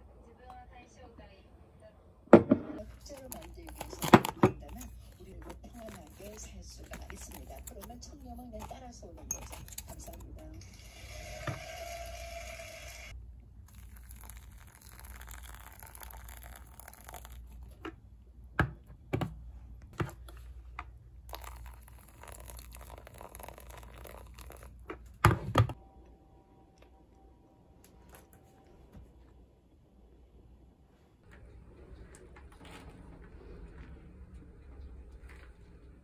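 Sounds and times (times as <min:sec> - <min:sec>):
paper filter tearing and crinkling: 0:02.8 - 0:10.4.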